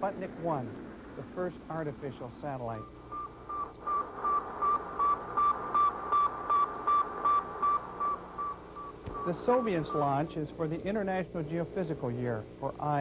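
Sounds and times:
radio hiss: 0.0s - 13.0s
short radio beeps: 2.7s - 10.3s.

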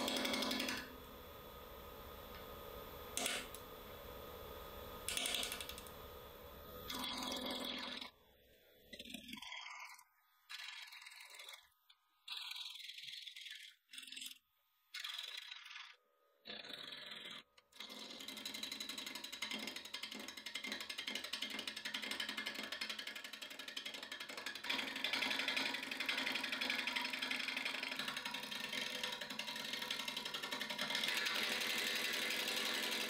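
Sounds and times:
lathe gouge ticking on wood: 17.9s - 33.0s.

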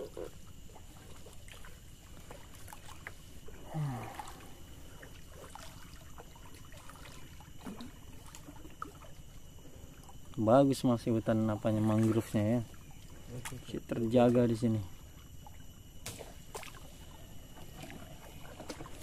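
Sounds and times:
water trickling and lapping: 0.0s - 19.0s
low voice hum: 3.5s - 4.9s, 11.4s - 15.2s.

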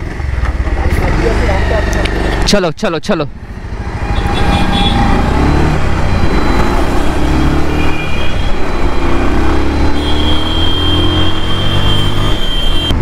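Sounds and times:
motorcycle engine accelerating: 3.5s - 13.0s.

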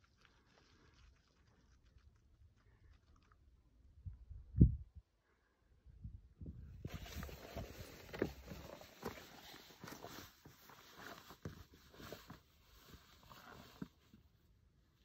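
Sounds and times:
boots scraping on rock: 6.9s - 14.0s.

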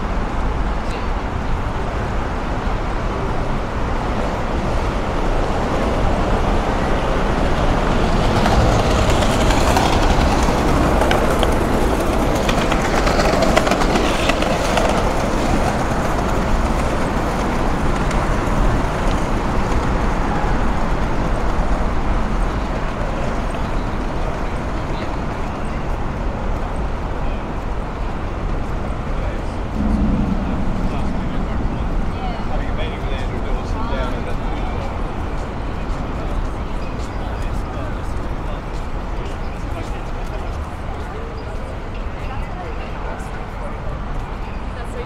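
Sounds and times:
city street noise: 0.0s - 45.0s
vehicle passing: 29.6s - 33.6s.

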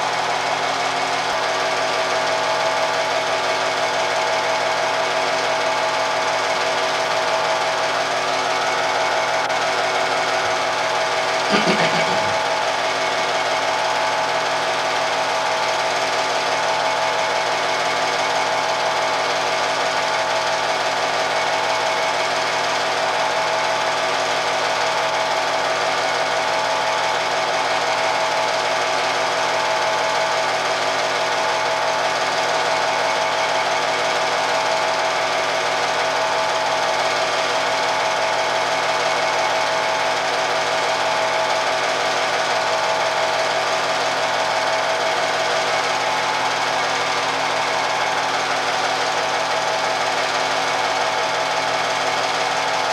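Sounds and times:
projector hum: 11.4s - 12.7s.

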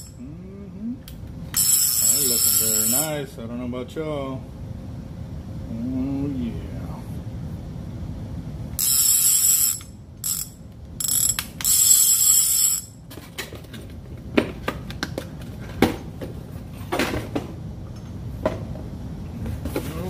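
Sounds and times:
fishing reel clicker buzzing: 1.6s - 3.1s, 8.8s - 12.9s.

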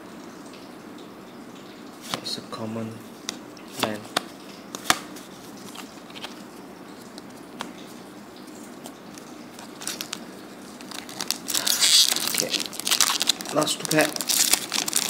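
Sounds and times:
foil wrapper crinkling: 9.2s - 15.0s.

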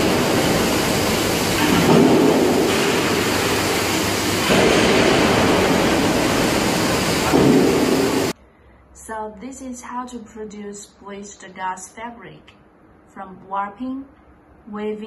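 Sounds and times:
industrial drying machine running: 0.0s - 8.4s.

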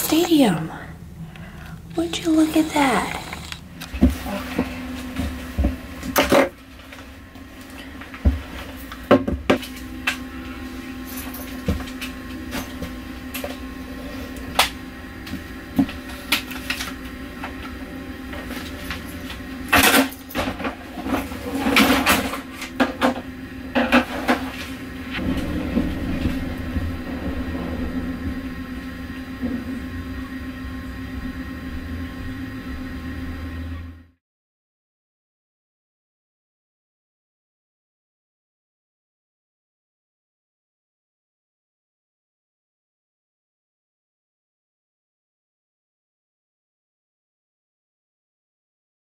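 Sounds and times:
steady cabin hum: 0.0s - 34.2s.

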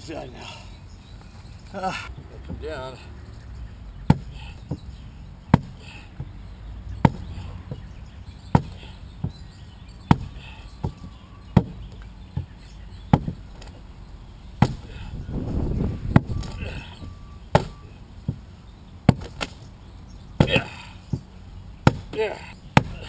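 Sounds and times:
adze chopping wood: 4.1s - 4.9s, 5.5s - 6.4s, 7.0s - 9.4s, 10.1s - 13.8s, 14.6s - 15.1s, 16.1s - 16.9s, 17.5s - 18.4s, 19.0s - 19.7s, 20.4s - 23.0s.

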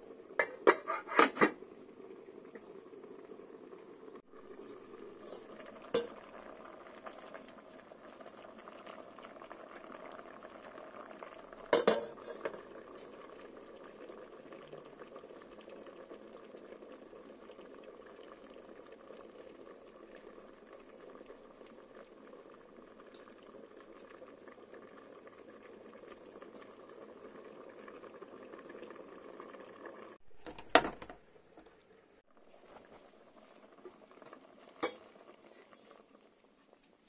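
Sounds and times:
pot of water boiling: 0.0s - 37.0s
lid or fork clinking on pot: 11.8s - 12.5s.

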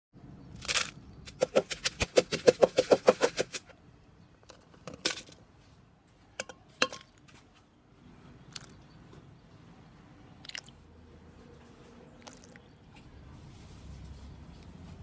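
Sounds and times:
pestle pounding in mortar: 1.3s - 3.6s.

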